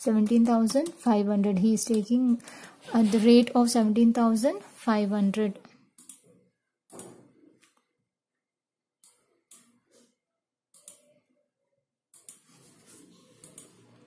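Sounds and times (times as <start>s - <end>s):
computer mouse clicks: 6.0s - 6.3s, 9.0s - 9.8s, 10.8s - 11.2s, 12.1s - 12.5s, 13.4s - 13.8s.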